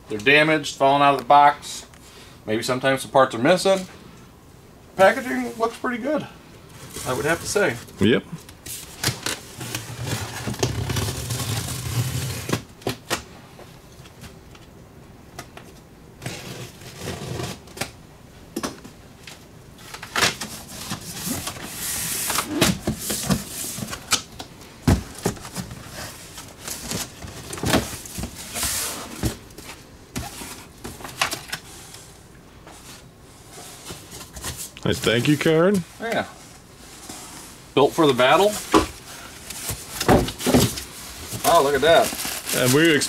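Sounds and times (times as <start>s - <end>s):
cardboard rustling and tearing: 6.9s - 7.8s, 8.7s - 12.7s, 16.2s - 17.9s, 38.3s - 43.0s.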